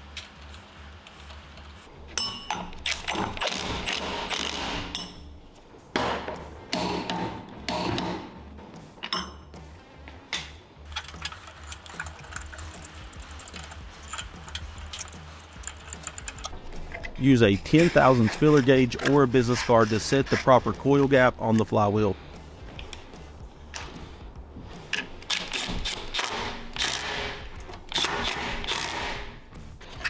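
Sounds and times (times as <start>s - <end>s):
torque wrench ratcheting: 0.0s - 5.2s, 10.9s - 17.2s, 24.9s - 30.0s
tools and parts knocking: 2.2s - 5.3s, 6.0s - 8.3s, 9.0s - 9.5s, 10.4s - 17.2s, 24.9s - 30.0s.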